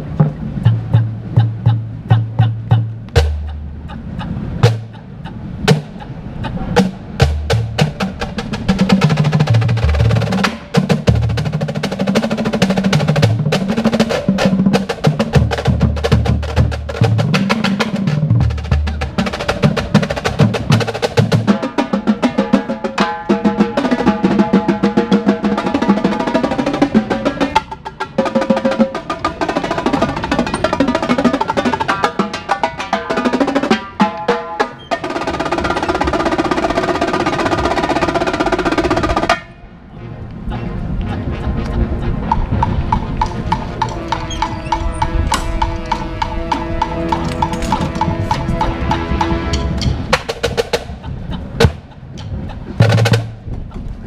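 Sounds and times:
low bass drum notes: 0.0s - 3.9s, 6.8s - 21.6s, 40.6s - 54.0s
drum corps playing: 0.2s - 3.8s, 4.6s - 6.1s, 6.8s - 39.6s, 42.2s - 53.5s.

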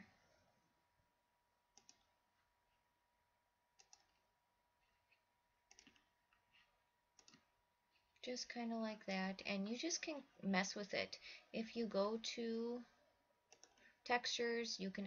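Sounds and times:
computer mouse clicks: 1.7s - 2.2s, 3.7s - 4.3s, 5.1s - 8.2s, 13.5s - 14.0s.

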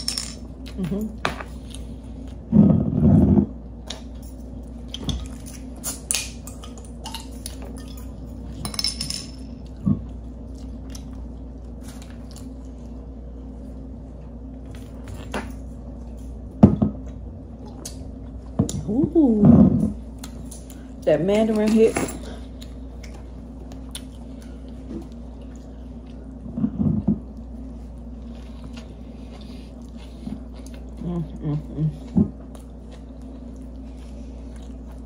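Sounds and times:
chewing and biting food: 9.5s - 13.6s, 22.2s - 35.0s.

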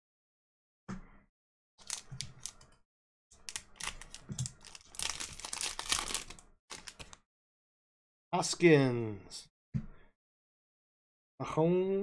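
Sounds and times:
wrapper tearing and crinkling: 1.8s - 2.6s, 3.4s - 7.2s.

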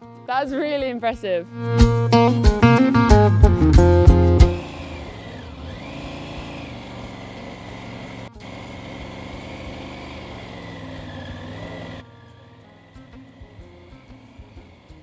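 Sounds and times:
motorcycle engine at low revs: 3.7s - 15.0s.

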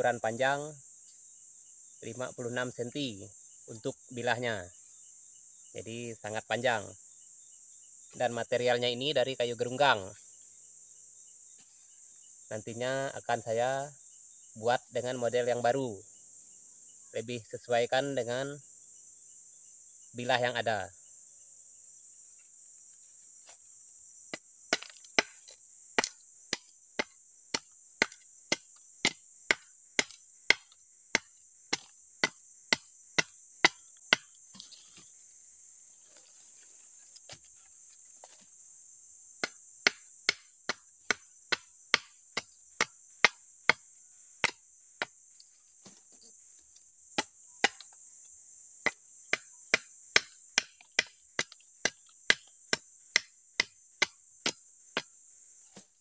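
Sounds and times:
insects droning: 0.0s - 56.0s
wood being chopped: 24.3s - 34.7s, 39.4s - 45.2s, 47.1s - 48.0s, 48.8s - 55.9s.

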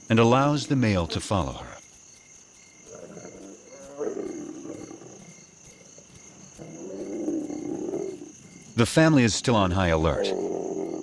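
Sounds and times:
crickets chirping: 0.0s - 11.0s
lions growling: 2.8s - 11.0s.

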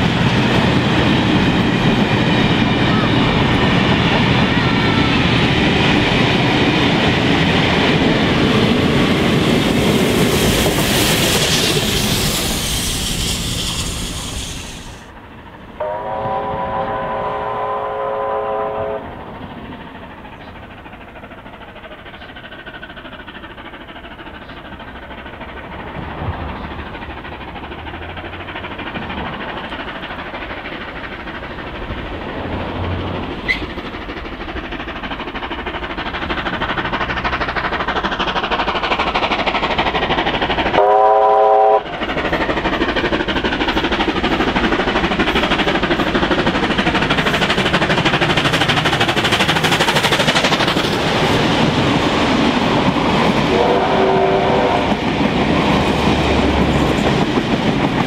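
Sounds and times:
steam locomotive running: 0.0s - 58.0s
steam train whistle: 15.8s - 19.1s, 40.8s - 41.9s, 53.5s - 55.0s.

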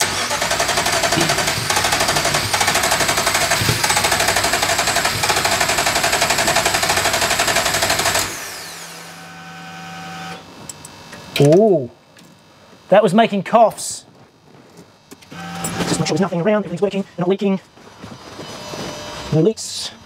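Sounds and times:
engine cranking on starter: 0.0s - 9.0s
falling whine: 0.0s - 11.9s, 15.1s - 20.0s
engine coughs: 0.1s - 1.9s
steady hum: 0.3s - 20.0s.

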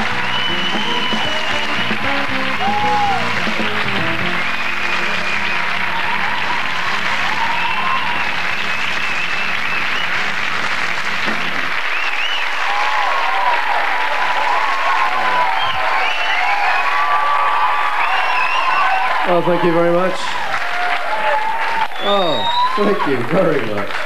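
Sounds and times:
background music: 0.0s - 12.6s
audience applauding and cheering: 0.0s - 24.0s.

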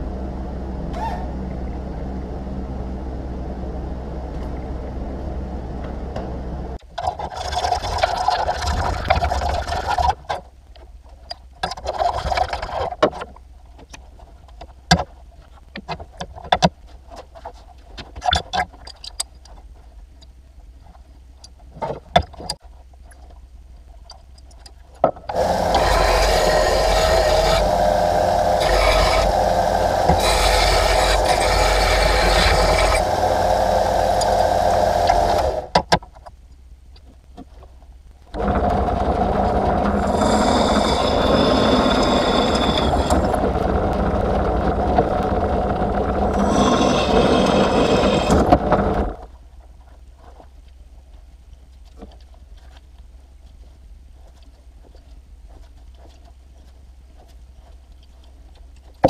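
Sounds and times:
belt sander grinding metal: 25.3s - 35.8s, 38.4s - 49.2s.

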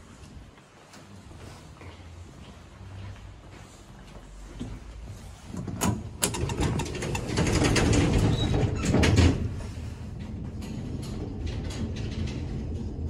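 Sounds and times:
elevator clicks: 5.6s - 8.1s.

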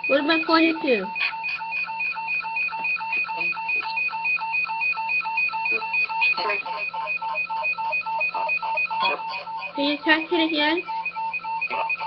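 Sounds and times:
pulsing two-tone beep: 0.0s - 12.0s.

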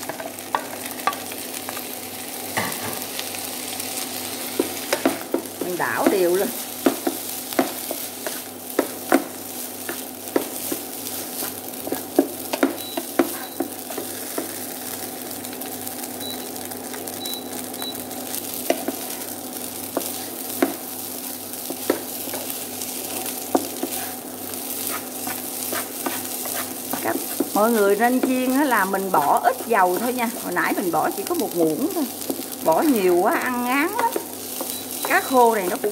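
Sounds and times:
rice sizzling in a frying pan: 0.0s - 35.9s
spatula scraping and knocking pan: 4.5s - 14.7s, 18.6s - 20.9s, 21.6s - 31.6s, 32.2s - 35.9s.

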